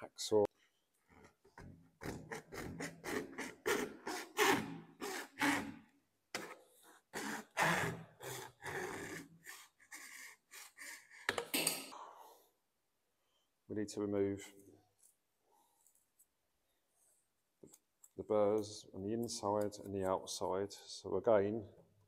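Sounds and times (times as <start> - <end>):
hacksaw cutting plastic pipe: 1.6 - 5.8, 6.4 - 11.5.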